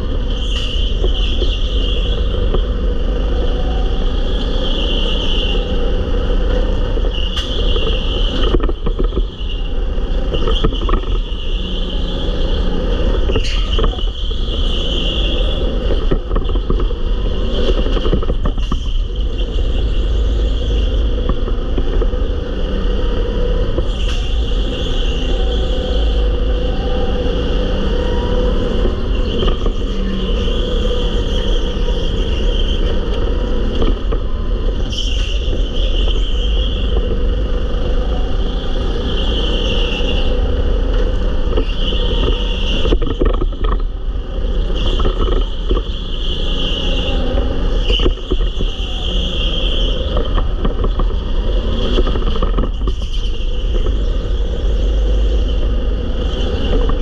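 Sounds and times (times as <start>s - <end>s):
go-kart engine and tyres: 0.0s - 57.0s
wind rumble on microphone: 0.0s - 57.0s.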